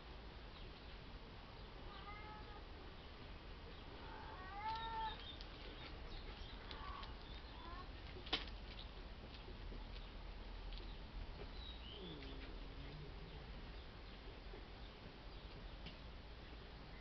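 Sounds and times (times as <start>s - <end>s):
cat meowing: 1.9s - 2.6s, 4.0s - 5.2s.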